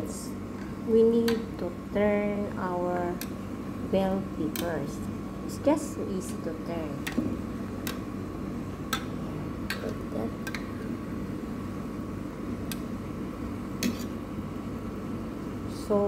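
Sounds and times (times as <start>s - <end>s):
steady low background noise: 0.0s - 16.0s
metal tongs clicking on pot: 1.2s - 1.6s, 3.0s - 3.4s, 4.4s - 4.9s, 8.9s - 10.8s.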